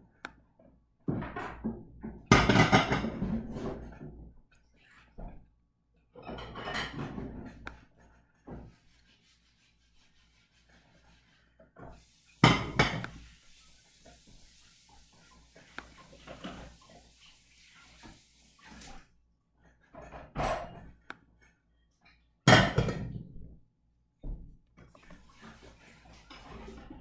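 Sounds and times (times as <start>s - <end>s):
household clattering and knocking: 1.0s - 4.4s, 6.2s - 8.8s, 11.8s - 17.2s, 19.8s - 21.0s, 22.5s - 23.6s.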